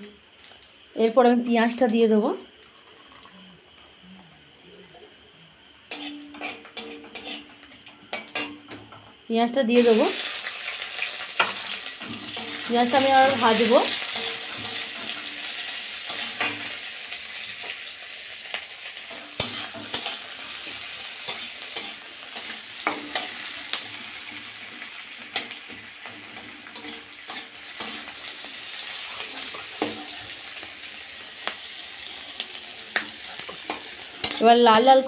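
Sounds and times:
onions sizzling in hot oil: 0:00.0 - 0:04.6, 0:05.2 - 0:35.0
metal spatula scraping pan: 0:05.9 - 0:08.8, 0:11.4 - 0:16.8, 0:19.0 - 0:30.4, 0:32.1 - 0:35.0.

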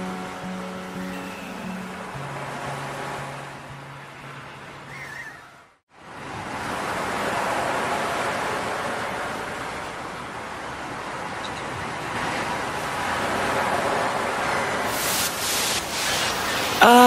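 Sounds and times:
steady rushing noise: 0:05.9 - 0:16.8.

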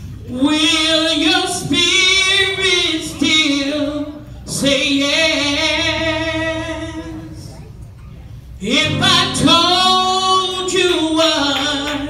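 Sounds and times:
woman singing gospel: 0:00.2 - 0:07.6, 0:08.6 - 0:12.0.

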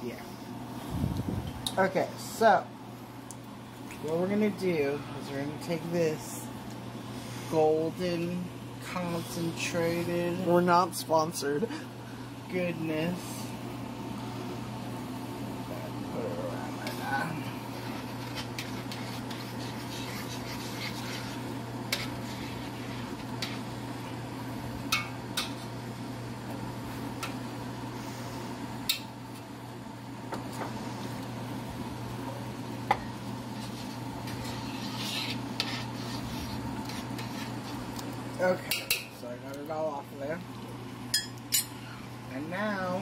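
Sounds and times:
spoon stirring in a pot: 0:16.8 - 0:24.2, 0:24.9 - 0:25.8, 0:32.9 - 0:39.2.

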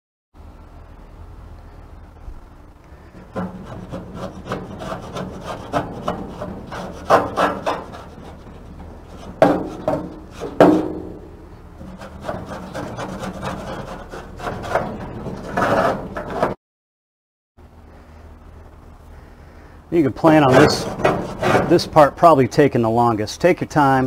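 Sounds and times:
scraper scraping metal grill: 0:03.0 - 0:11.0, 0:11.8 - 0:16.6, 0:20.2 - 0:22.4.

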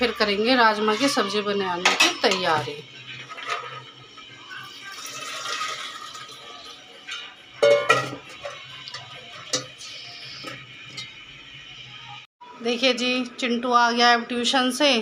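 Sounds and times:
water pouring into a pot: 0:04.6 - 0:11.1
ringing metal clank: 0:07.6 - 0:08.6.

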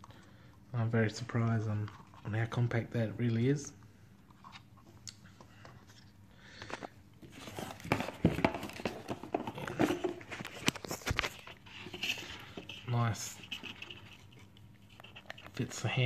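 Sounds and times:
packaging rustling and crackling: 0:06.5 - 0:15.8.

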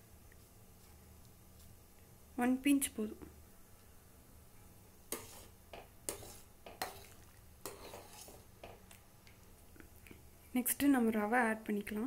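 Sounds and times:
spoon scraping metal pan: 0:05.1 - 0:08.8.

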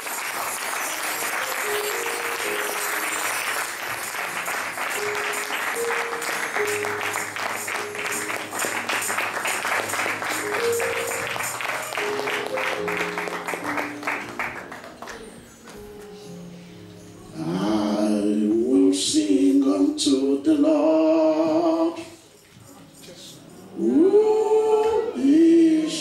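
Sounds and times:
congregation clapping: 0:00.0 - 0:15.8
instrumental church music: 0:00.0 - 0:26.0.

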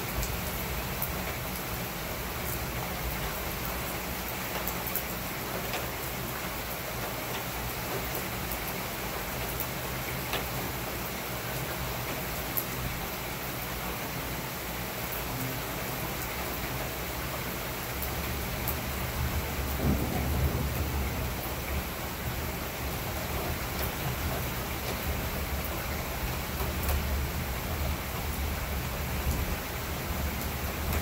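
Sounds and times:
heavy rain on pavement: 0:00.0 - 0:31.0
low rumble of thunder: 0:18.8 - 0:24.5
sharp raindrop ticks: 0:26.5 - 0:27.2.

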